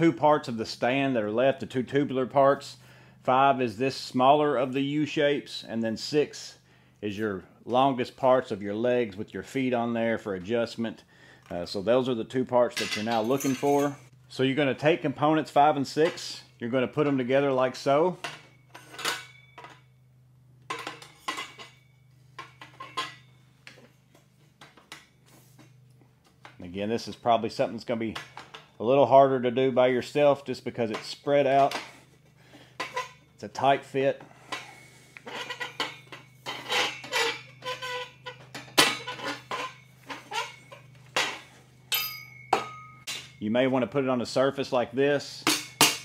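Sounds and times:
low steady hum: 0:00.0 - 0:46.0
metal stand parts clinking: 0:12.7 - 0:14.1, 0:18.2 - 0:19.9, 0:20.7 - 0:23.8, 0:34.4 - 0:43.5, 0:45.4 - 0:46.0
steel tubes clanking together: 0:34.4 - 0:43.4.

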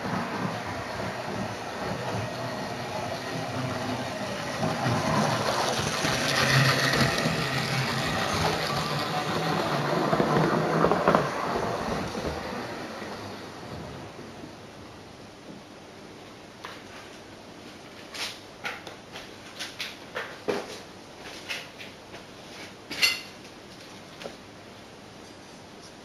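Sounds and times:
model train running on track: 0:00.0 - 0:14.4.

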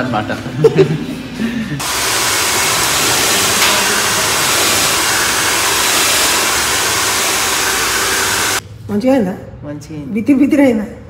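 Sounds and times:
hair dryer running: 0:01.8 - 0:08.6.

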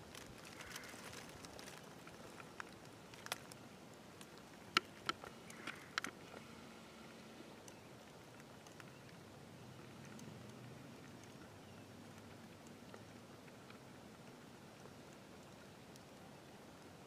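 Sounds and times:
sharp clicks and crackles: 0:00.0 - 0:03.6, 0:04.2 - 0:06.5, 0:07.6 - 0:09.2
rustling of dry grass: 0:00.0 - 0:07.4.

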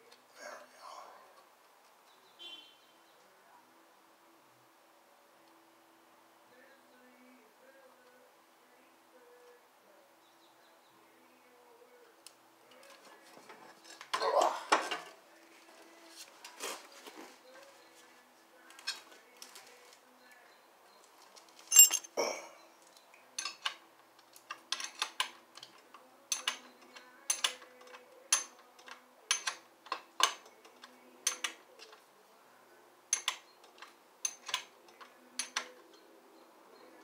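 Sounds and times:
metal tools clinking on motorcycle: 0:21.7 - 0:22.2, 0:34.2 - 0:34.7.

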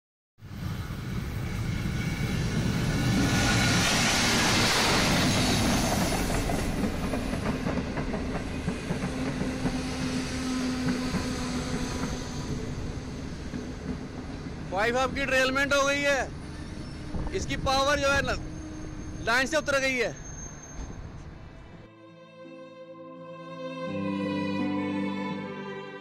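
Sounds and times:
train grinding through ballast: 0:01.3 - 0:14.7
train clanking and rattling: 0:01.3 - 0:21.7.

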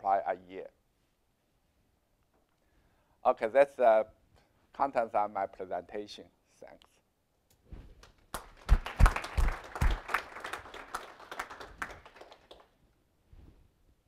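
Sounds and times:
audience applauding: 0:08.3 - 0:12.7.

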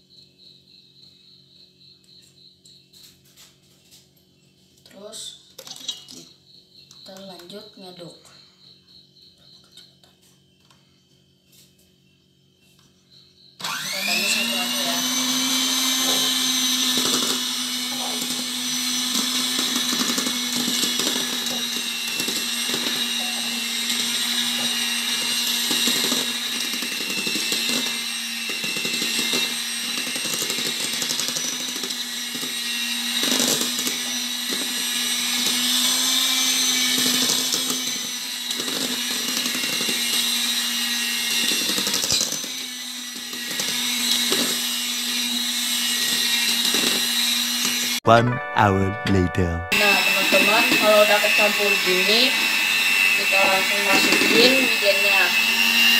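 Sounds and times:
electric hand mixer whirring: 0:13.6 - 0:48.0, 0:49.7 - 0:55.9.

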